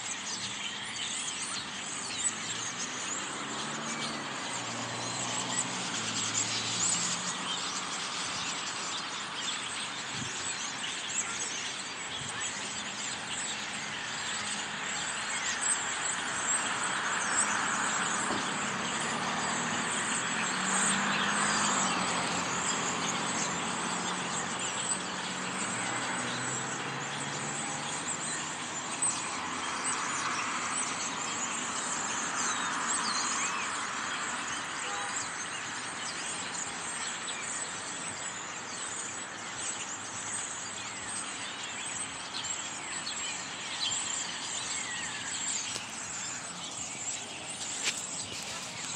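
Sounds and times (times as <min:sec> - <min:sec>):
flock of songbirds calling: 0:00.0 - 0:48.9
road traffic hum: 0:00.0 - 0:48.9.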